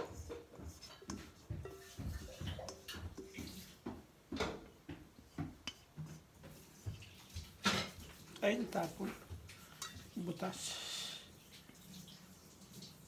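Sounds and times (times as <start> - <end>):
scraping metal bowl: 0.0 - 3.8.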